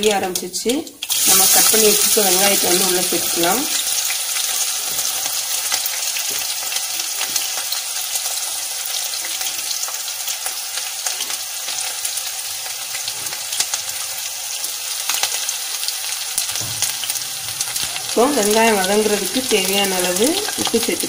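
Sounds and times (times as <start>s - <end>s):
onions sizzling in hot oil: 0.0s - 21.0s.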